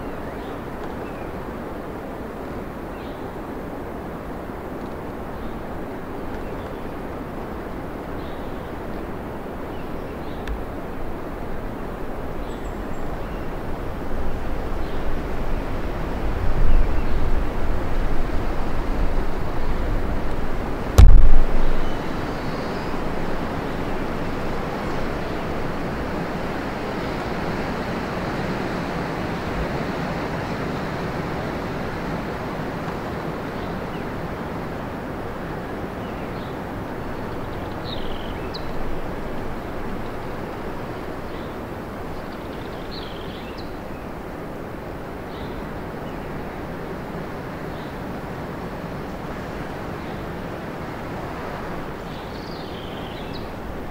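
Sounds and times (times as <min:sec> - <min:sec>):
wind gusting through forest: 0:00.0 - 0:53.9
wind rumble on microphone: 0:00.0 - 0:53.9
loud thump: 0:21.0 - 0:21.9.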